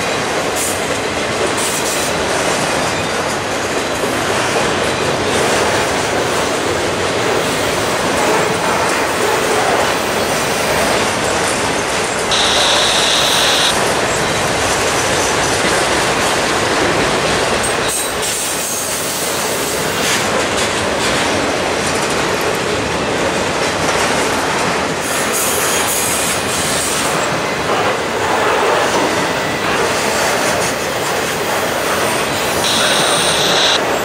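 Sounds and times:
freight train wheels on rails: 0:00.0 - 0:34.0.

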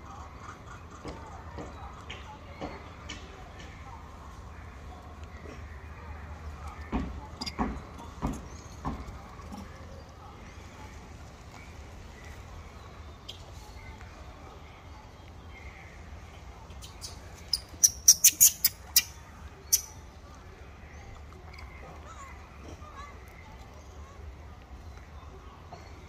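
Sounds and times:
sharp high chirps: 0:17.0 - 0:19.1.

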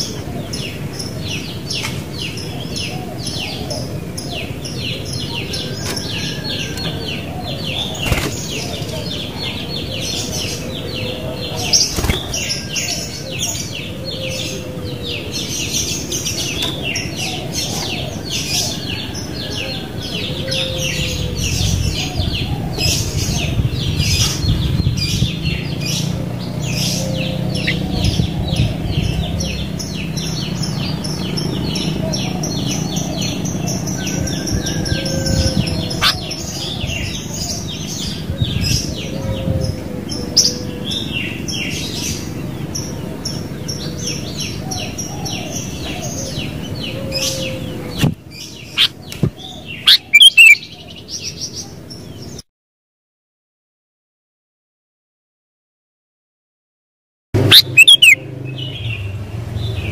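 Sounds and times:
birds chattering with high chirps: 0:00.0 - 0:52.5, 0:57.4 - 0:59.9
low whistled bird notes: 0:18.6 - 0:26.1.

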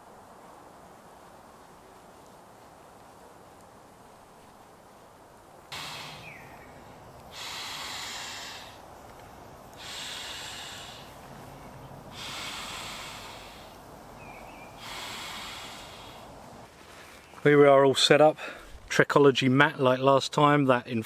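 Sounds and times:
man blowing into pillow valve: 0:05.7 - 0:08.9, 0:09.8 - 0:11.4, 0:12.1 - 0:13.9, 0:14.7 - 0:16.3.

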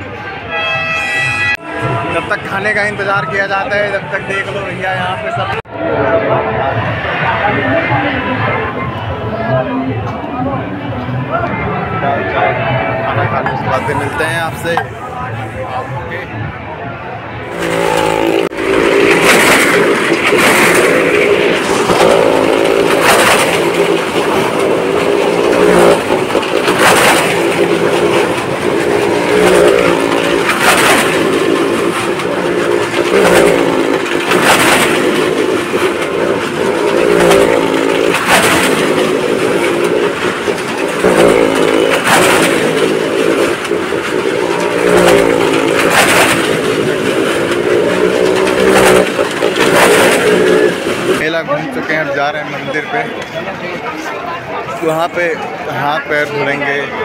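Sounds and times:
vehicle engine revving hard: 0:17.4 - 0:51.2.

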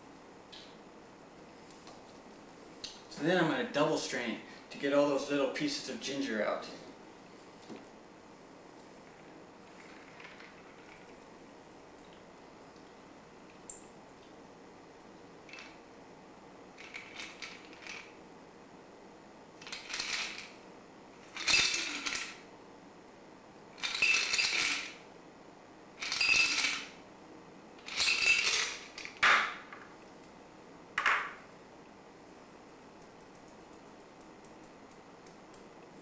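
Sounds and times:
ice rattling in cocktail shaker: 0:21.3 - 0:22.4, 0:23.8 - 0:25.0, 0:26.0 - 0:26.9, 0:27.8 - 0:29.0.

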